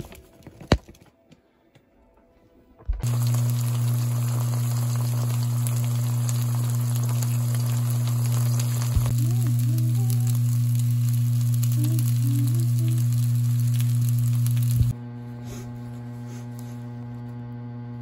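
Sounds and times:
steady low hum: 2.6 - 18.0
pancake sizzling in hot oil: 3.0 - 14.9.

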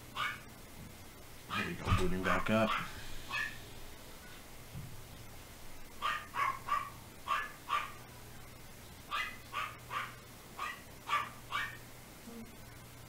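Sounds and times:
dogs barking: 0.2 - 0.5, 1.5 - 3.6, 5.9 - 8.1, 9.1 - 11.9.

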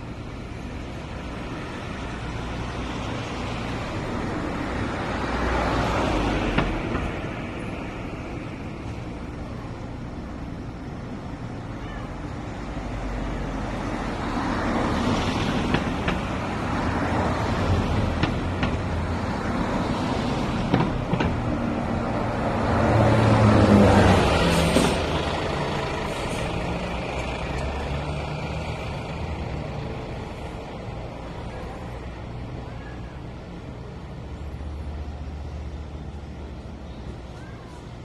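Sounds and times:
street traffic noise: 0.0 - 38.0
vehicle passing: 12.7 - 31.3.

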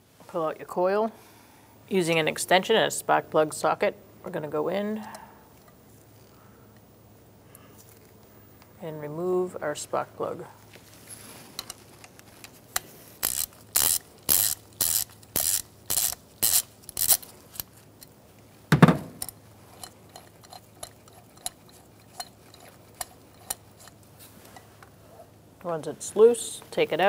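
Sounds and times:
ratchet clicking: 12.8 - 17.8, 19.2 - 24.0
heavy knock: 18.7 - 19.2.

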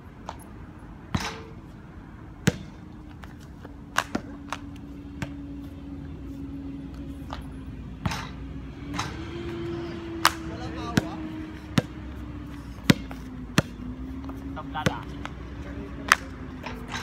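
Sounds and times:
basketball hitting rim: 1.1 - 1.6, 2.4 - 2.9, 8.0 - 9.2, 12.8 - 13.8
basketball bouncing on court: 2.4 - 3.2, 4.0 - 5.5, 10.8 - 12.1, 12.8 - 15.1.

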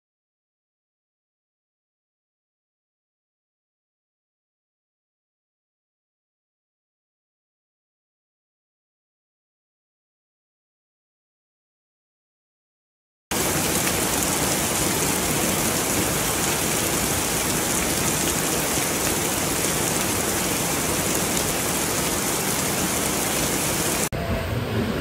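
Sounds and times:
heavy rain pouring: 13.3 - 25.0.

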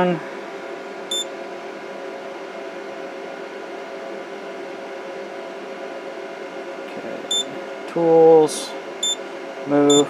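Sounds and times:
cooling fan whirring hum: 0.0 - 10.0.

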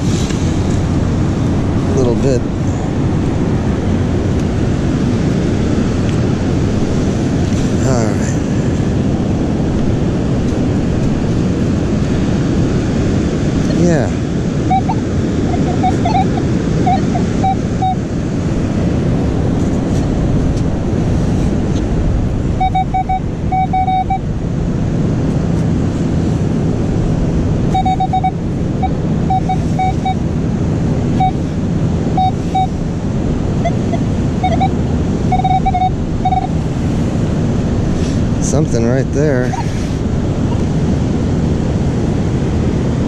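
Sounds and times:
wind on microphone: 0.0 - 43.0
metal detector beeps: 14.6 - 18.0, 22.6 - 24.2, 27.7 - 30.3, 31.2 - 31.4, 32.1 - 32.8, 33.6 - 36.6, 39.4 - 39.7.

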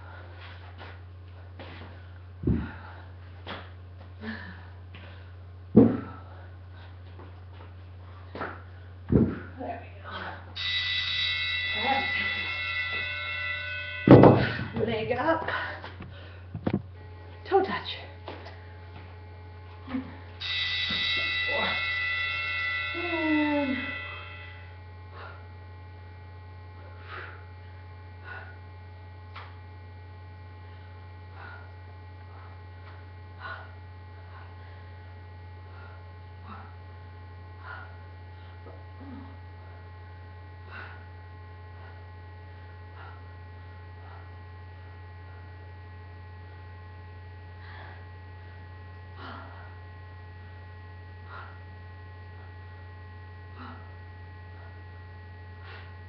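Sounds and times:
electrical mains hum: 0.0 - 56.0
thin steady tones: 9.6 - 15.8, 19.9 - 25.5.

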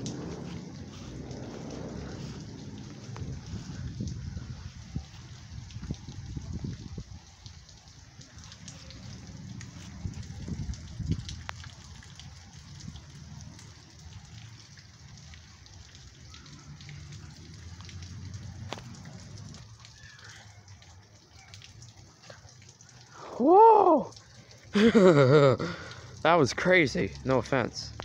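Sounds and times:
low rumble: 0.0 - 6.2
rain falling: 0.0 - 28.0.

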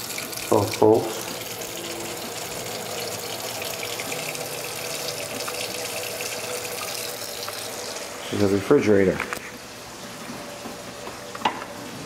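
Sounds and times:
faucet water splashing in steel sink: 0.0 - 8.4.

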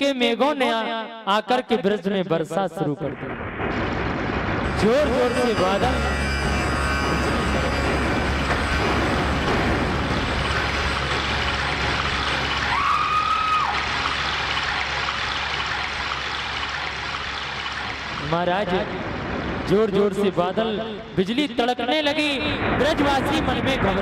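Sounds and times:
heavy rainfall hiss: 6.4 - 20.4.

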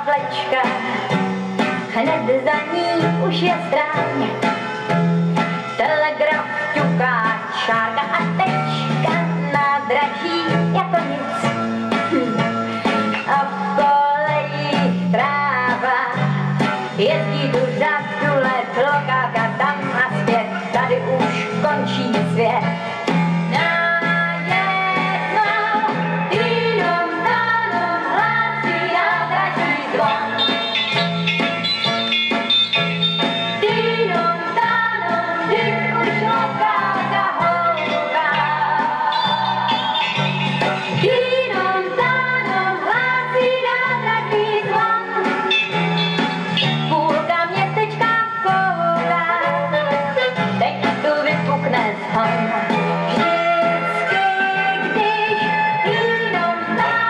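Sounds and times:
pop song with dance orchestra: 0.0 - 57.0
wordless sung melody: 23.5 - 57.0.

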